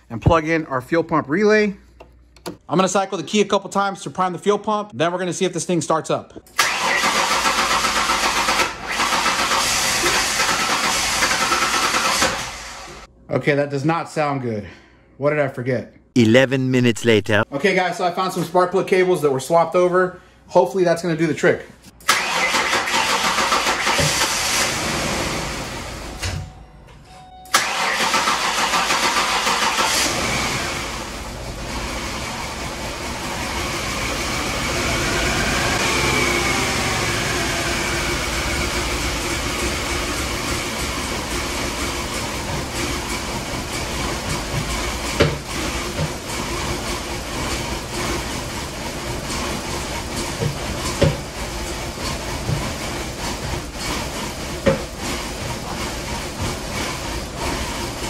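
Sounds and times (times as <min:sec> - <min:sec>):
car engine starting and running rough: 0:06.6 - 0:13.0, 0:22.0 - 0:26.1, 0:27.5 - 0:58.0.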